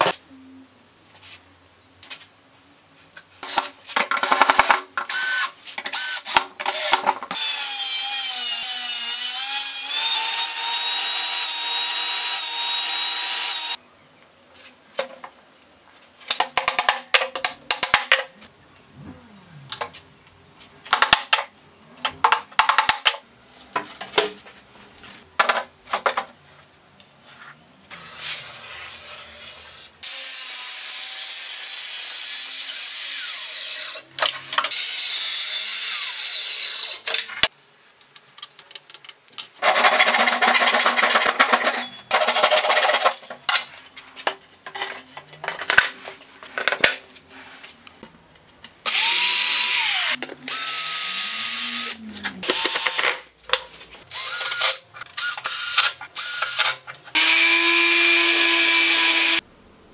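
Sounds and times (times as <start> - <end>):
cordless drill driving screws: 48.9 - 53.0, 54.1 - 59.4.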